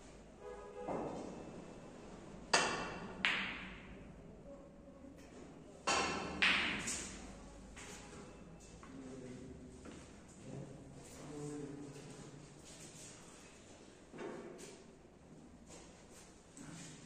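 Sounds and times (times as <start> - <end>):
snooker balls clacking: 2.5 - 4.0, 5.9 - 7.2.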